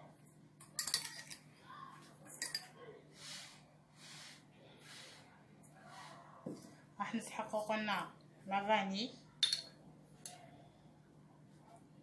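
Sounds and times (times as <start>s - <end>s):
metal spoon clinking on saucepan: 0.6s - 1.4s, 2.4s - 2.7s, 9.4s - 10.5s.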